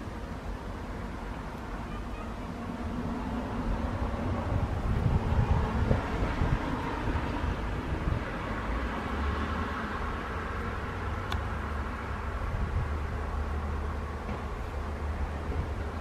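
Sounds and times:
wind noise on microphone: 0:03.2 - 0:09.0, 0:11.1 - 0:13.3, 0:14.5 - 0:16.0.

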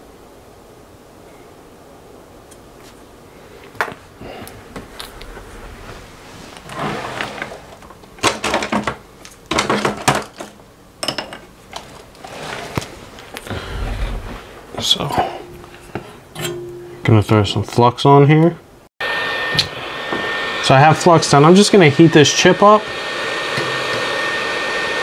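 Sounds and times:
tools and parts clattering: 0:07.1 - 0:12.8.

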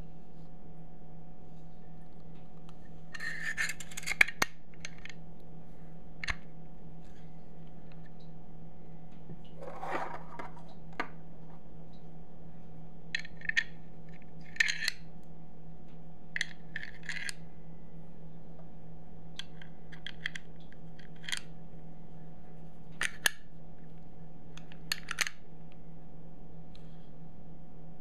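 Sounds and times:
low hum: 0:00.0 - 0:28.0
cartridges clicking into magazine: 0:24.9 - 0:25.4.

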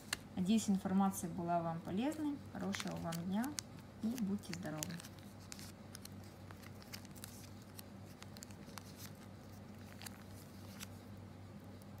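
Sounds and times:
faint low hum: 0:00.0 - 0:12.0
plastic bags crinkling: 0:02.1 - 0:11.0.

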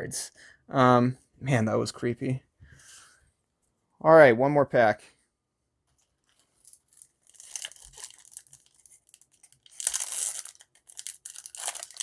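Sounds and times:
foil pack crinkling: 0:06.2 - 0:12.0
foil pack ripping open: 0:06.6 - 0:12.0.

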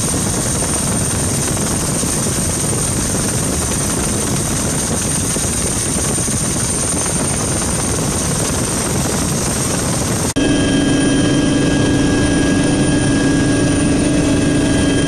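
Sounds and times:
helicopter engine and rotor: 0:00.0 - 0:15.0
hum with whining tones: 0:06.7 - 0:15.0.

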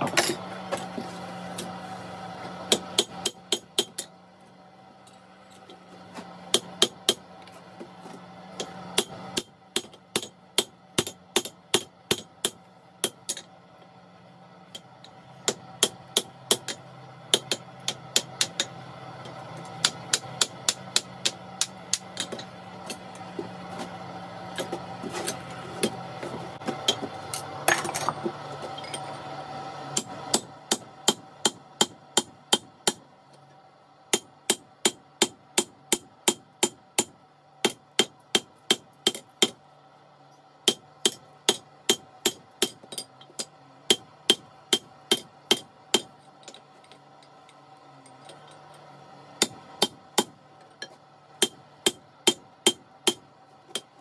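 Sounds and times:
hammer striking steel on anvil: 0:08.6 - 0:13.5, 0:15.4 - 0:18.8, 0:19.7 - 0:23.1, 0:30.0 - 0:33.0, 0:34.1 - 0:39.6, 0:40.6 - 0:47.4, 0:49.4 - 0:54.0.

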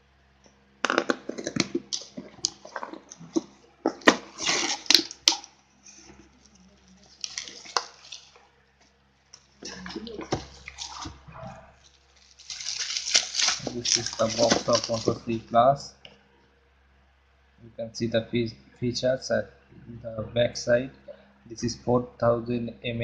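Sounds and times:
cardboard and bubble wrap crinkling: 0:00.9 - 0:08.5, 0:09.6 - 0:15.5.

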